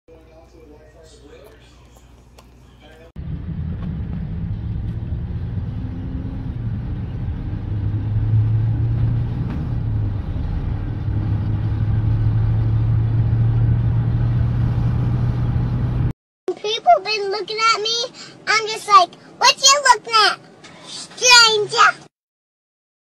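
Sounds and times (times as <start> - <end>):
car interior rumble: 3.2 - 16.1.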